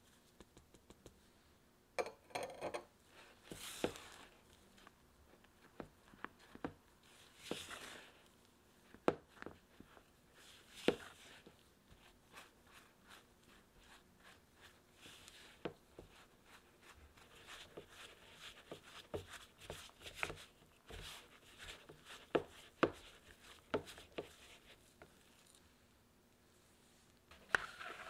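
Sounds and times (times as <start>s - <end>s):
spatula scraping dough: 3.1s - 4.4s, 5.7s - 8.2s, 9.2s - 25.1s, 27.4s - 28.0s.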